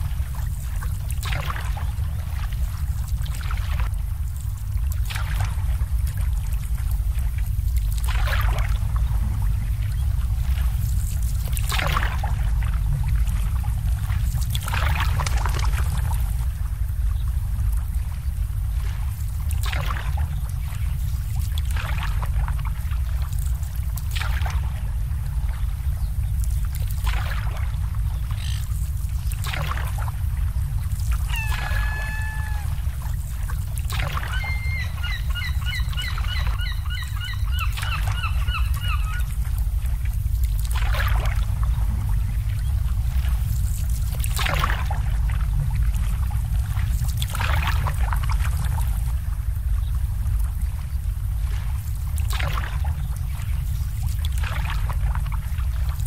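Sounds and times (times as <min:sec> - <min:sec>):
low rumble: 0:00.0 - 0:56.0
water lapping against boats: 0:00.0 - 0:56.0
bird calling: 0:31.2 - 0:32.9, 0:34.1 - 0:39.3.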